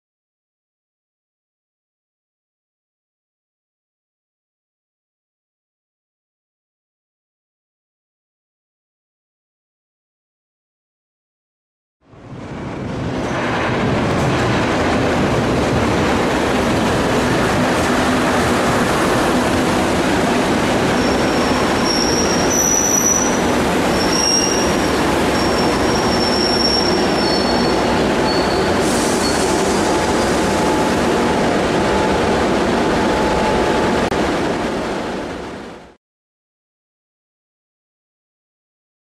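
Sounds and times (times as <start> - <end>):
train wheels rumbling on rails: 12.1 - 36.0
high-pitched wheel squeals: 20.9 - 30.4.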